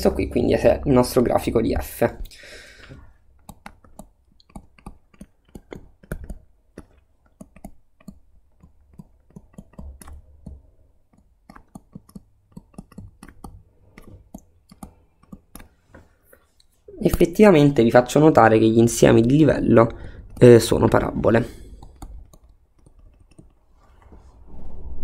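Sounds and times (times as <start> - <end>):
stylus tapping on tablet screen: 3.4 - 16.1.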